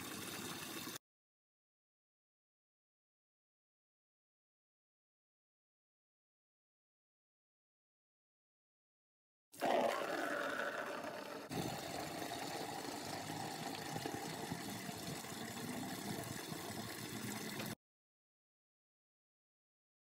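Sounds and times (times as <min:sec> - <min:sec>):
tap water splashing into bucket: 0:11.5 - 0:17.8.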